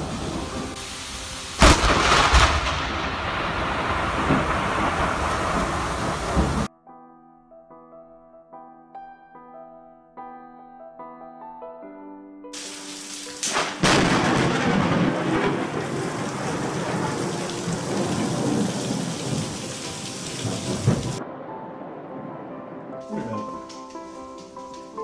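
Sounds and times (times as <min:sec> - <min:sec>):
heavy rain: 0:00.0 - 0:06.7, 0:12.6 - 0:25.0
lightning crack: 0:00.0 - 0:06.7, 0:12.6 - 0:25.0
thunder: 0:01.6 - 0:06.7, 0:13.4 - 0:25.0.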